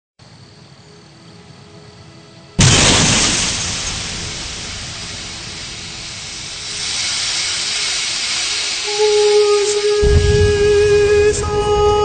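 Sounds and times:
loud blast: 0:02.6 - 0:12.0
rushing hiss: 0:02.6 - 0:12.0.

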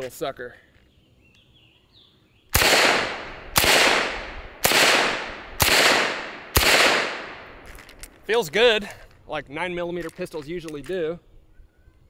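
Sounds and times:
pistol shots echoing: 0:02.5 - 0:07.7.

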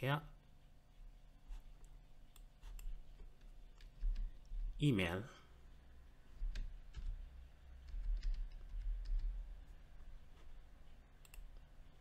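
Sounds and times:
low steady hum: 0:00.0 - 0:12.0
keyboard keystrokes: 0:07.8 - 0:09.4.

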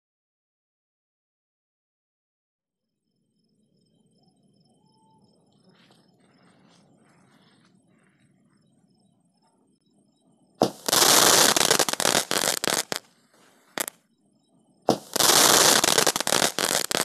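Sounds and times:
firework crackling sparks: 0:10.6 - 0:13.1, 0:13.7 - 0:14.0, 0:14.9 - 0:17.0.

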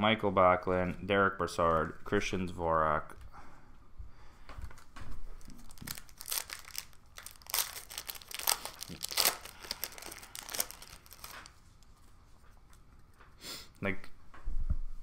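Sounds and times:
foil wrapper crinkling: 0:04.8 - 0:12.0.

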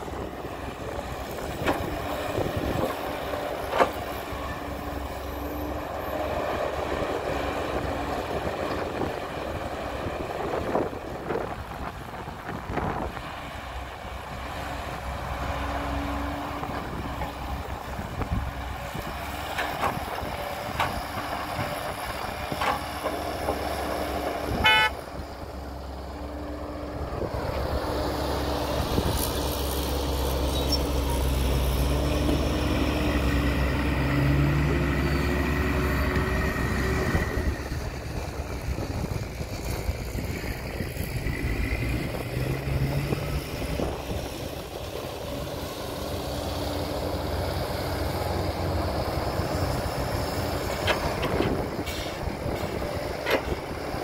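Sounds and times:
heavy diesel machinery running: 0:00.0 - 0:54.0
horn toot: 0:24.6 - 0:25.0.

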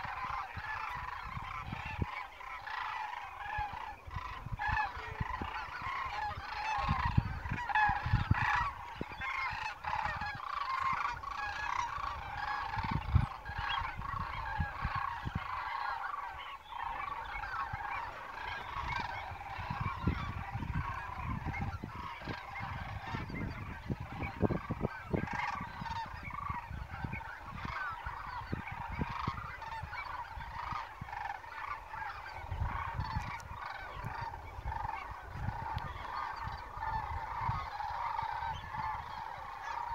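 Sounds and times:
geese honking: 0:00.0 - 0:39.9
gusty wind rumbles: 0:03.4 - 0:16.3, 0:17.0 - 0:39.5.

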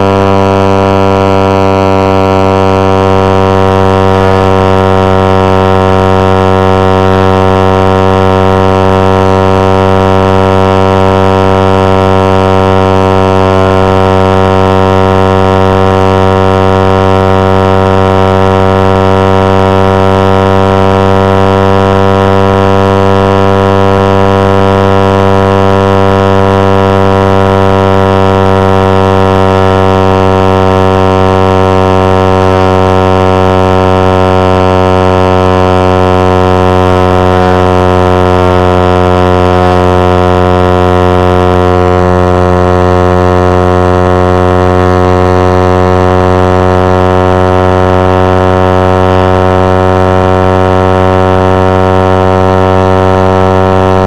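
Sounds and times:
motorcycle engine at high revs: 0:00.0 - 0:54.0.

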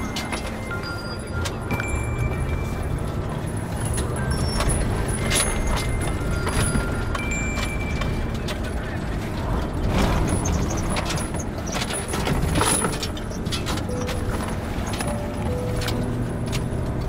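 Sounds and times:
car engine low rumble: 0:00.0 - 0:17.0
rattling and clicking in car: 0:00.0 - 0:17.0.

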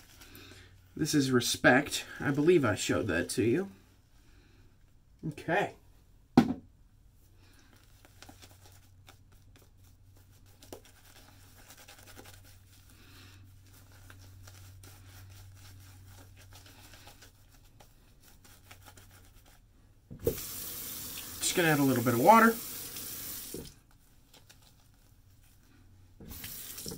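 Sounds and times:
brief thump: 0:06.4 - 0:06.6
shaving brush scratching stubble: 0:08.4 - 0:12.9, 0:13.6 - 0:19.6.

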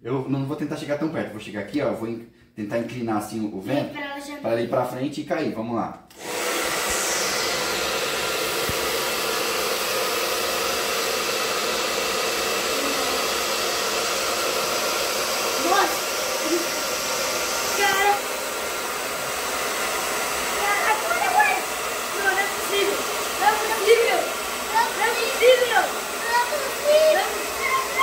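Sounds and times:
hair dryer blowing: 0:06.1 - 0:28.0.

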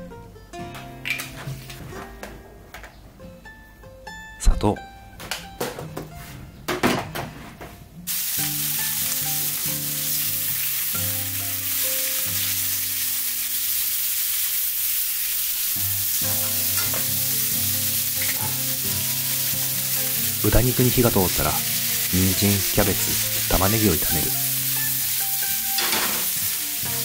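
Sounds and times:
pork sizzling in frying pan: 0:08.1 - 0:27.0.

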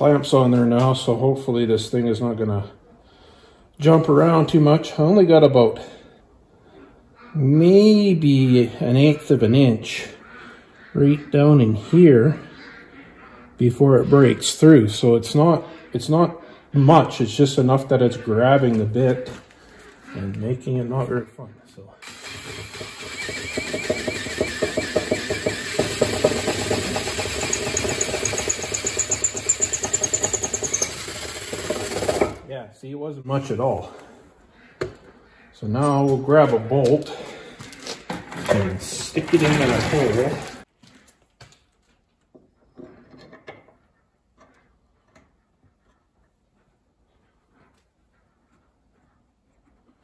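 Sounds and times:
drill bit chattering: 0:22.0 - 0:32.4
electric drill boring through metal: 0:22.0 - 0:32.4.

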